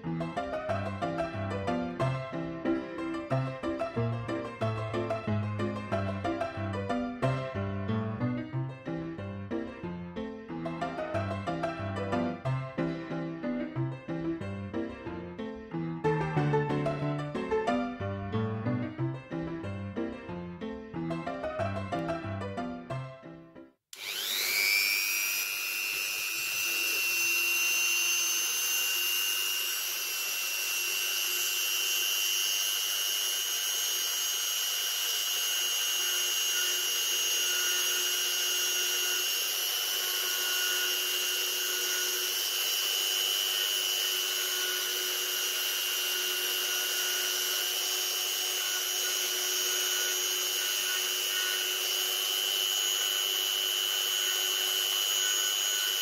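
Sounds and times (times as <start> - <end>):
milling bit cutting wood: 23.9 - 56.0
rotary tool whining: 23.9 - 56.0.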